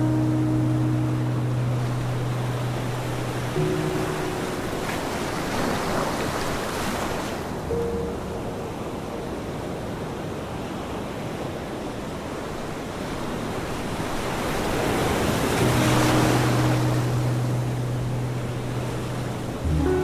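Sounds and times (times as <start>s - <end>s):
low steady tone: 0.0s - 5.5s, 15.4s - 20.0s
ocean waves breaking: 0.0s - 20.0s.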